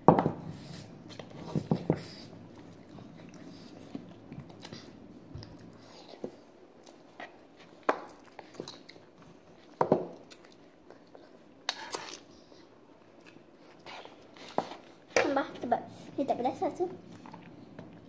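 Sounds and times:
children chewing: 0.8 - 15.2.

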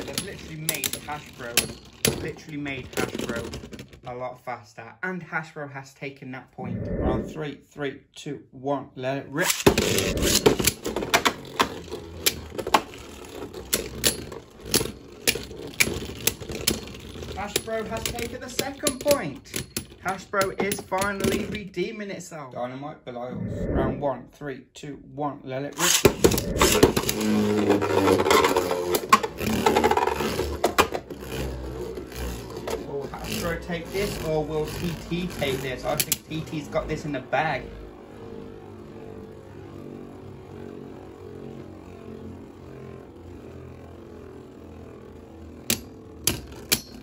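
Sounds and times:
spinning tops clacking: 0.0 - 3.1
spinning tops whirring: 0.0 - 4.0, 9.4 - 21.5, 25.8 - 47.0
spinning tops launched: 25.8 - 28.0
tops clashing clicks: 45.6 - 47.0.

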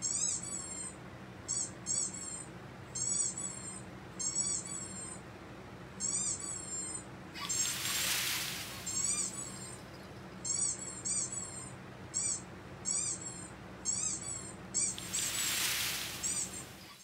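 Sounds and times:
high-pitched animal chirps: 6.0 - 9.8, 12.2 - 17.0
breathy rushes of noise: 7.4 - 9.5, 15.0 - 17.0.

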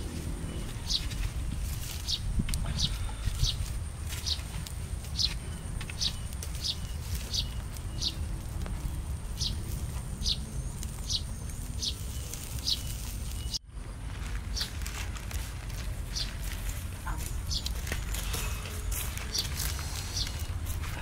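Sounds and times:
bird chirping: 0.0 - 13.6, 17.1 - 21.0.

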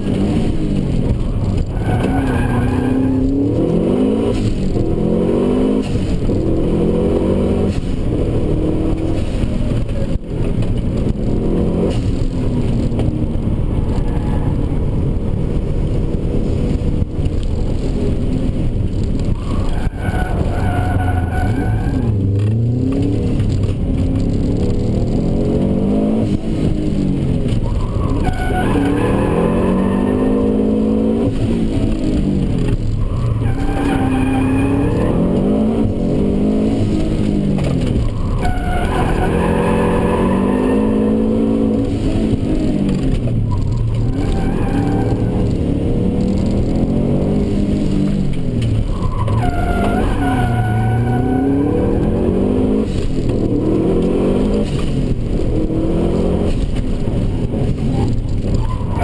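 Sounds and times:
car engine revving: 0.0 - 59.0
tyres squealing: 27.6 - 31.3, 33.0 - 36.7, 37.9 - 42.3, 43.4 - 46.2, 48.8 - 52.9, 57.8 - 59.0.

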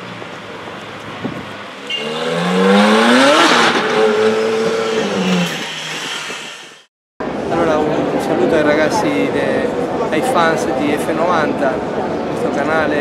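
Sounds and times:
sports car engine accelerating: 0.1 - 5.6.

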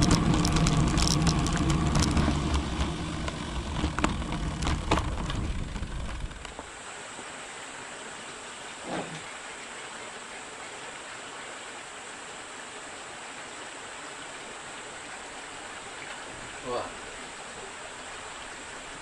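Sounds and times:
bike road noise: 0.0 - 6.8.

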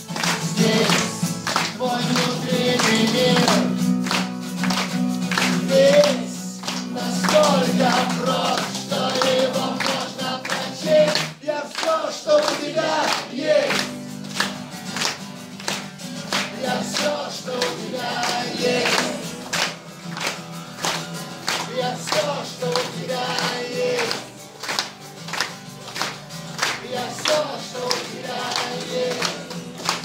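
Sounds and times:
acoustic guitar strumming: 0.0 - 11.4, 12.5 - 30.0
person singing wordlessly: 0.1 - 3.8, 5.5 - 13.9, 16.5 - 19.6, 21.6 - 24.3, 26.8 - 30.0
steady rhythmic beat: 12.6 - 30.0.

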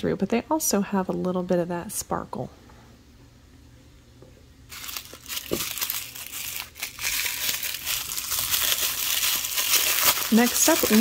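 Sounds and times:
wrapper crinkling: 4.7 - 11.0.

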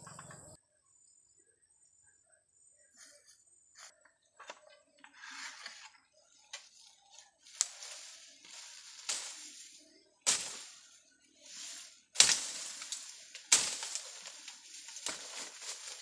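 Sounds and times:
dry leaves rustling and crackling: 6.5 - 16.0
stems cracking sharply: 7.6 - 9.6, 10.2 - 11.0, 11.6 - 16.0.

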